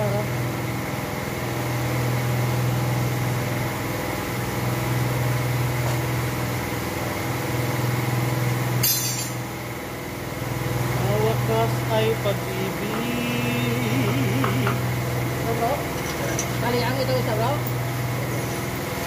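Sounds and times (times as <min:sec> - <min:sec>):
machine hum: 0:00.0 - 0:19.0
sharp metallic clink: 0:08.8 - 0:09.4.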